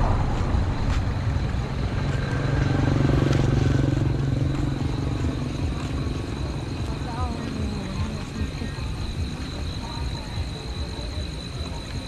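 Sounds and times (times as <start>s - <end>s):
vehicle engine running: 0.0s - 11.3s.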